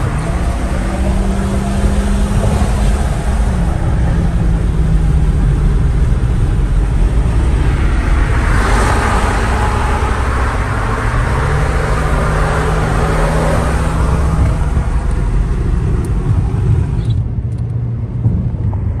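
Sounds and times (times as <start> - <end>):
low engine drone: 0.0 - 19.0
tyre and road noise: 0.0 - 19.0.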